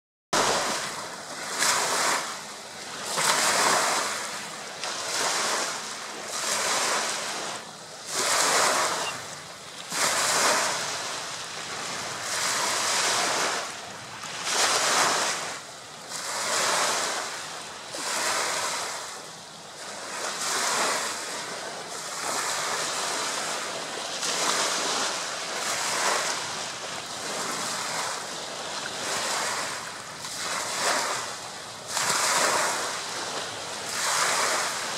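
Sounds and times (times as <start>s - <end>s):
small waves washing up beach: 0.4s - 34.9s.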